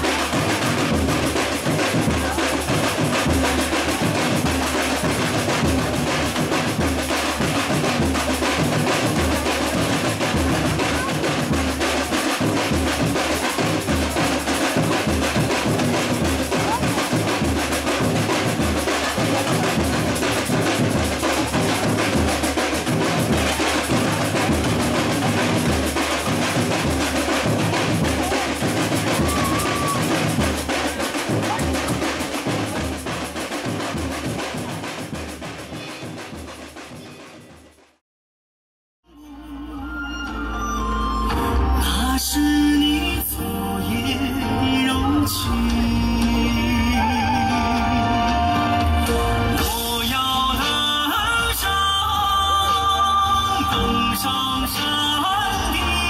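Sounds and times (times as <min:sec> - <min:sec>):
bass drum beats: 0:00.0 - 0:37.4
rapid hand percussion: 0:00.0 - 0:38.0, 0:41.8 - 0:56.0.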